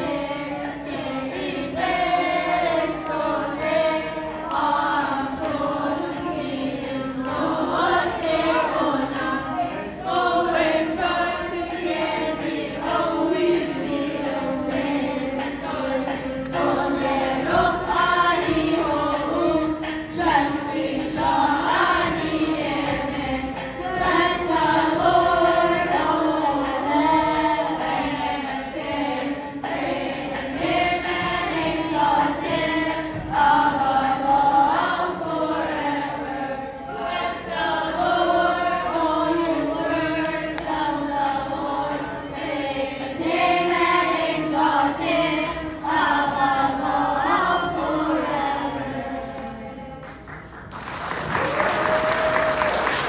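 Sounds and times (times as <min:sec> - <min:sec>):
children's choir singing a hymn: 0:00.0 - 0:53.0.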